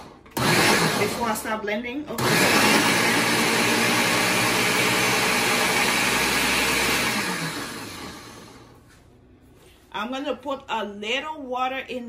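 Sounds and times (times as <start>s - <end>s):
blender running and winding down: 0.0s - 1.3s, 2.2s - 8.7s.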